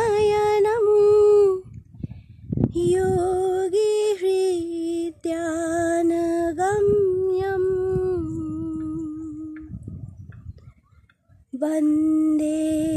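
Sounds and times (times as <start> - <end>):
woman singing a devotional chant: 0.0 - 1.7, 2.7 - 10.0, 11.6 - 12.9.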